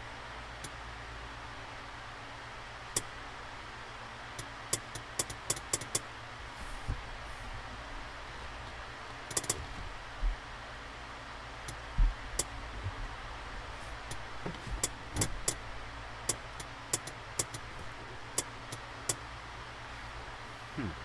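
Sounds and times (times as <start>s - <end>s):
steady low hum: 0.0s - 21.0s
sharp clicks of test probes: 9.3s - 9.6s, 16.3s - 17.6s.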